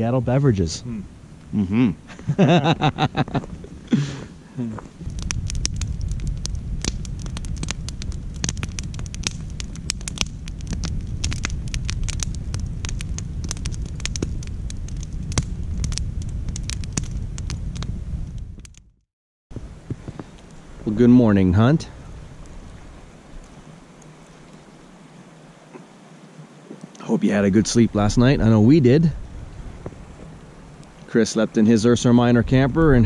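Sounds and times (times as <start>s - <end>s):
campfire crackling and popping: 0.0s - 33.0s
man laughing: 1.6s - 4.8s.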